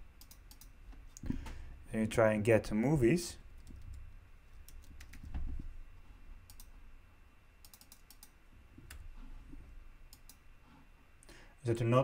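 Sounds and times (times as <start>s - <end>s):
mouse clicks: 7.6s - 8.3s, 10.1s - 10.4s.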